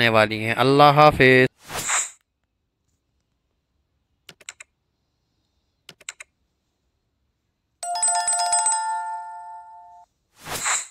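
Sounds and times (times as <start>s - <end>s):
mouse clicks: 4.3s - 4.7s, 5.9s - 6.3s
trilling notification bell: 7.8s - 10.0s.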